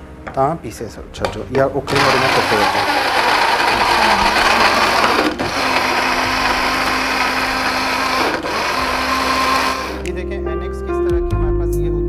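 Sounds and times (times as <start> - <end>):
electric grinder running: 1.9 - 10.1.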